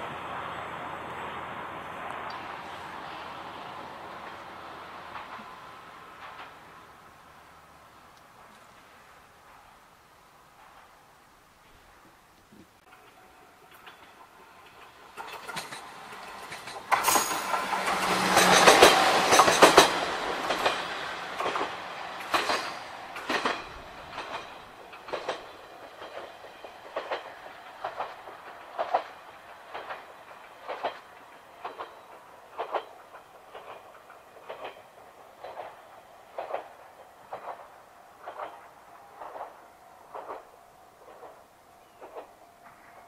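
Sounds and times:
rush of train noise: 0:00.0 - 0:43.0
sharp even train wheel clack: 0:04.1 - 0:06.8, 0:12.8 - 0:43.0.

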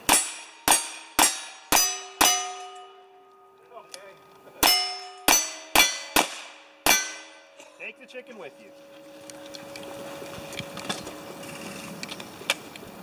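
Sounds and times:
ring of struck steel plate: 0:00.0 - 0:03.6, 0:04.6 - 0:09.0.

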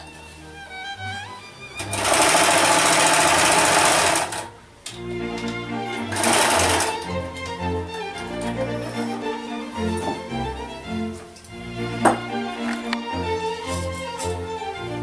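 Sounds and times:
background music with held notes: 0:00.0 - 0:15.0
sewing machine running: 0:01.8 - 0:04.5, 0:06.1 - 0:07.0.

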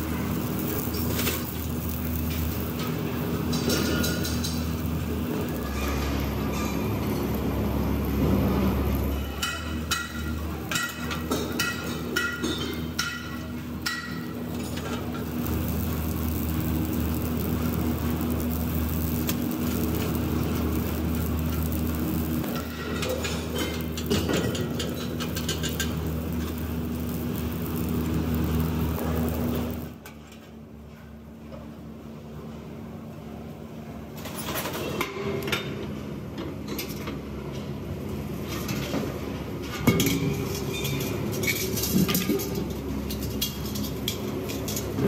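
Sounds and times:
welding rig machine hum: 0:00.0 - 0:45.0
metallic clanks of steel cylinders: 0:09.2 - 0:15.3.

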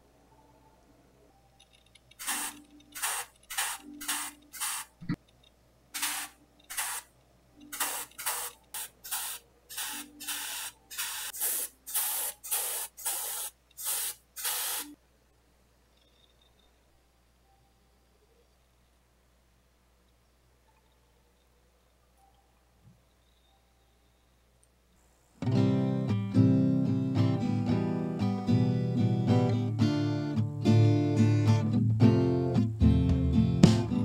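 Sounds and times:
airbrush spraying in hissing bursts: 0:02.2 - 0:05.0, 0:06.0 - 0:07.1, 0:07.7 - 0:15.0.

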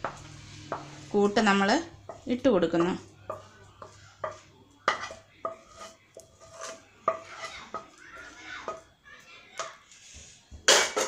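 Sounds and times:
spatula scraping: 0:00.0 - 0:08.8, 0:09.6 - 0:11.0
spatula clinking against pan: 0:02.8 - 0:08.9.

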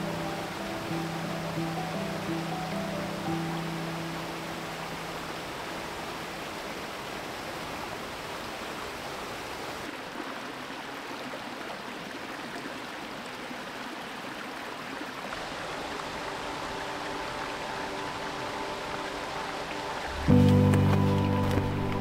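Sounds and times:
creek rushing over rocks: 0:00.0 - 0:22.0.

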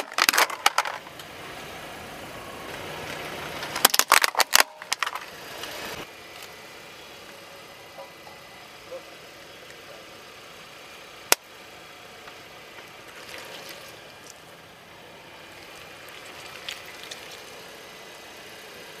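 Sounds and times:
beads crackling on asphalt: 0:00.0 - 0:01.1, 0:03.0 - 0:06.6, 0:12.2 - 0:14.4, 0:15.5 - 0:17.7.

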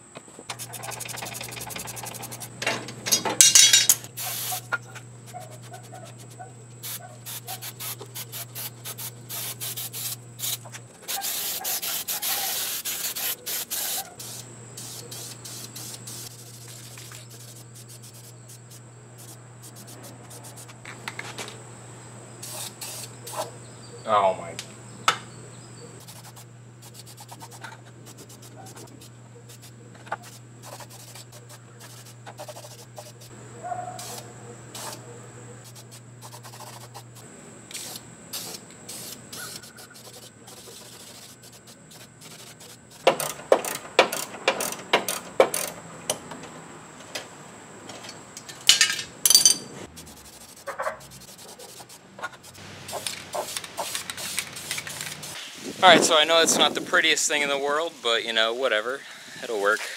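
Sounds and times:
aerosol can hissing: 0:04.0 - 0:20.8, 0:22.4 - 0:23.5, 0:26.0 - 0:33.3, 0:34.0 - 0:35.0, 0:35.6 - 0:43.0, 0:49.9 - 0:56.0
paper towel wiping metal: 0:04.2 - 0:20.8, 0:26.0 - 0:33.3, 0:37.8 - 0:43.0, 0:50.0 - 0:55.4.

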